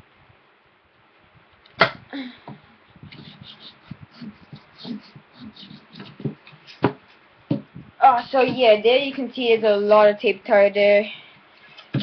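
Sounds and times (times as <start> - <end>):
irregular taps and scrapes: 2.5 - 8.8.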